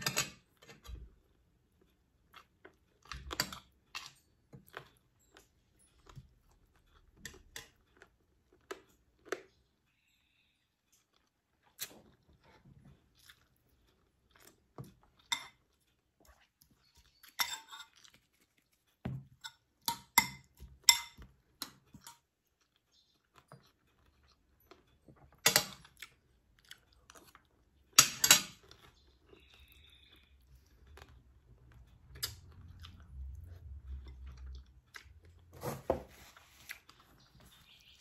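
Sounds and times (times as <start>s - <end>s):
chewing and mouth sounds: 10.9s - 19.0s, 28.6s - 35.5s.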